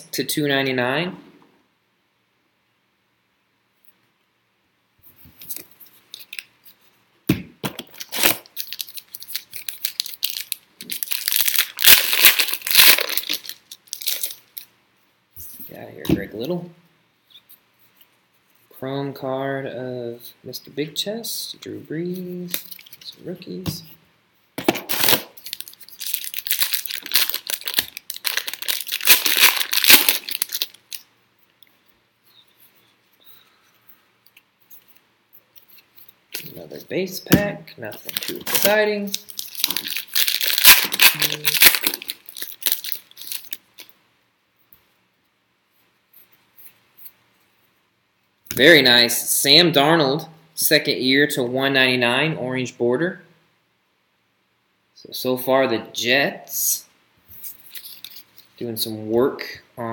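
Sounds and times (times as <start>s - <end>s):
foil wrapper tearing and crinkling: 7.8s - 14.7s, 24.8s - 31.1s, 38.0s - 43.9s.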